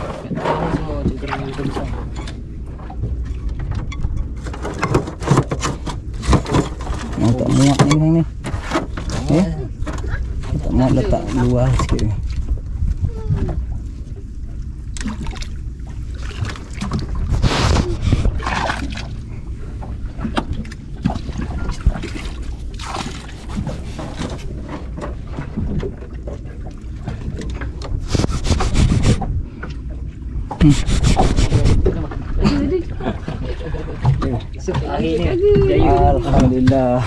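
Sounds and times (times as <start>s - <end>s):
boat engine low rumble: 0.0s - 37.0s
wind on microphone: 9.7s - 14.5s, 16.3s - 19.0s, 27.8s - 29.7s, 30.3s - 37.0s
knocking and rubbing: 28.0s - 29.3s, 30.6s - 32.0s.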